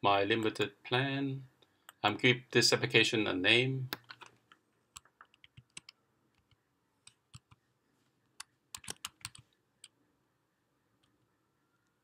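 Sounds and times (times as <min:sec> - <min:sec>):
computer keyboard typing: 0:05.0 - 0:07.6, 0:08.4 - 0:09.5.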